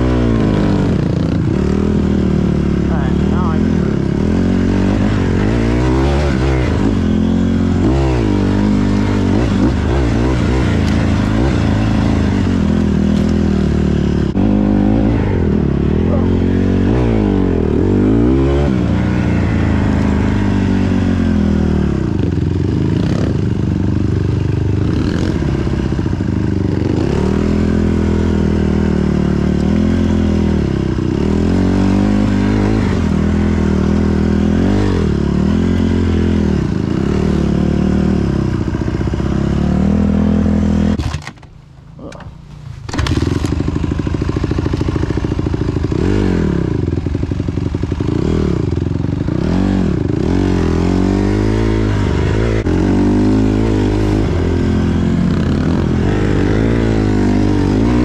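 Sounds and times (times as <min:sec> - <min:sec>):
dirt bike engine revving: 0:00.0 - 0:41.3, 0:42.0 - 0:58.0.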